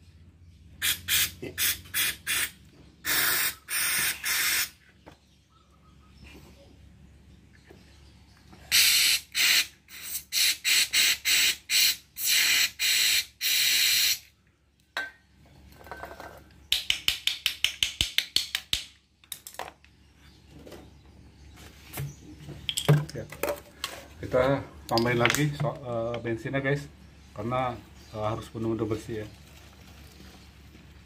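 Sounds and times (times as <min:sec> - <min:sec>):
aerosol spray hissing bursts: 0:00.8 - 0:04.7, 0:08.7 - 0:14.2
short aerosol puffs: 0:00.8 - 0:04.8, 0:08.7 - 0:14.3.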